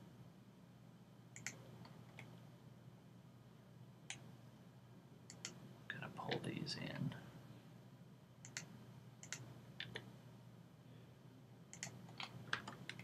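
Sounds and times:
faint low hum: 0.0 - 13.0
computer mouse and keyboard clicks: 1.4 - 2.3, 5.3 - 5.6, 8.4 - 10.1, 11.7 - 13.0.

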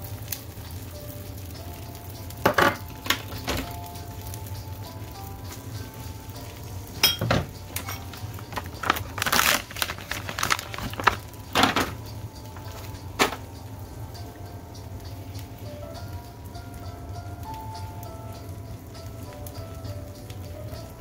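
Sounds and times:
low steady hum: 0.0 - 21.0
plastic package crinkling: 7.7 - 13.4.

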